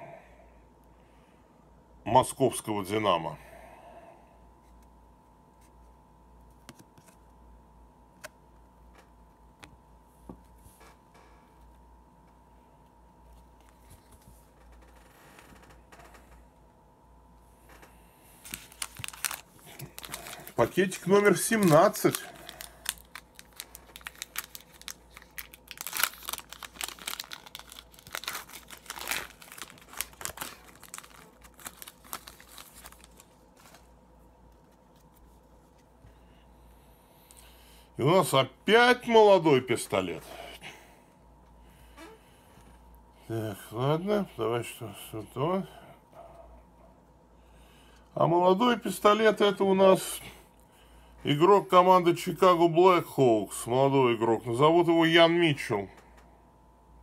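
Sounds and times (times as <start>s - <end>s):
low steady hum: 0.0s - 57.0s
wrapper being torn and crinkled: 18.4s - 33.9s.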